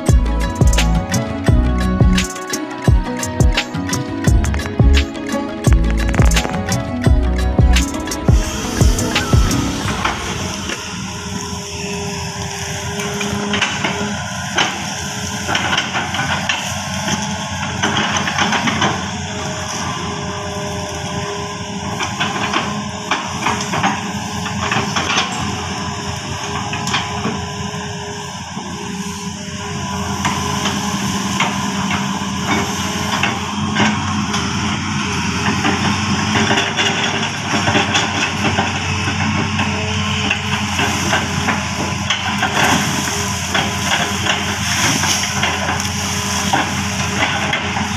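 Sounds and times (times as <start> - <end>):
excavator diesel engine under load: 0.0 - 47.9.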